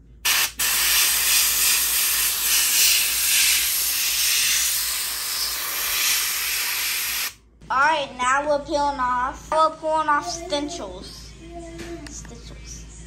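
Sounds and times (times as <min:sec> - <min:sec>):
airbrush hissing: 0:00.2 - 0:07.4.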